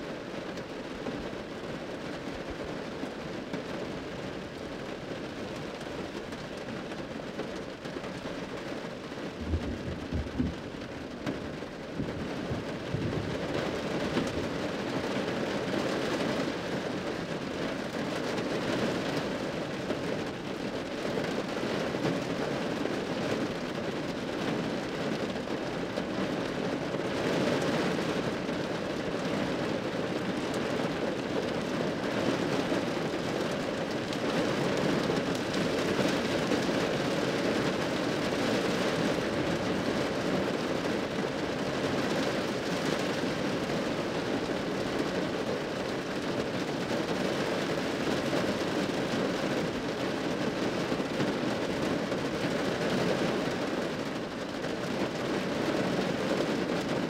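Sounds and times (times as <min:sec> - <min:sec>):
hard rain drumming on a roof: 0:00.0 - 0:57.0
low rumble of thunder: 0:09.3 - 0:15.0.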